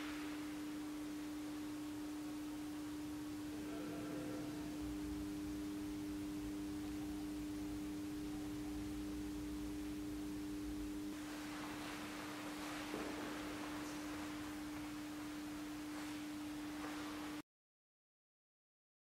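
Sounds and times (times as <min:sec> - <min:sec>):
low electronic tone: 0:00.0 - 0:12.0
soft hiss: 0:00.0 - 0:17.4.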